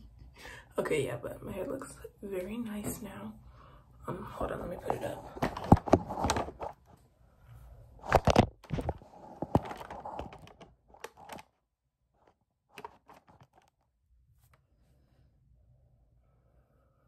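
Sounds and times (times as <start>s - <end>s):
phone handling noise: 8.0s - 11.5s, 12.2s - 13.7s.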